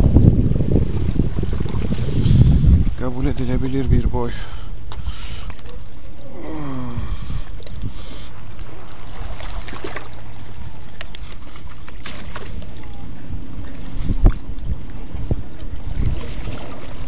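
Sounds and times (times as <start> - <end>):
wind rumbling on microphone: 0.0 - 5.2, 6.2 - 8.8, 12.2 - 17.0
water lapping: 0.0 - 17.0.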